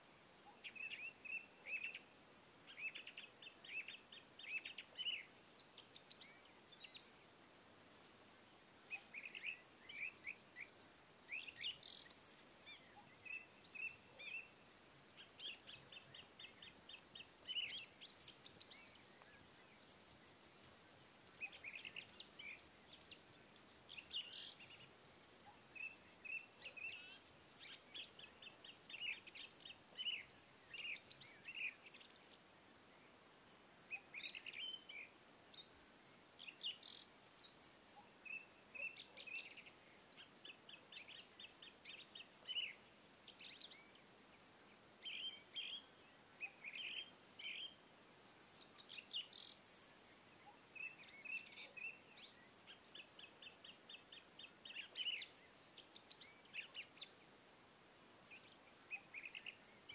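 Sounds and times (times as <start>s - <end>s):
small birds chirping and trilling: 0.4s - 7.5s, 8.2s - 32.5s, 33.9s - 59.9s.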